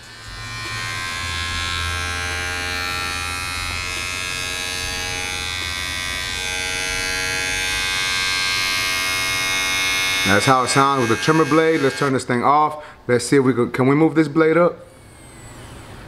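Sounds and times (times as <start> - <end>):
cordless trimmer buzzing: 0.0 - 12.2.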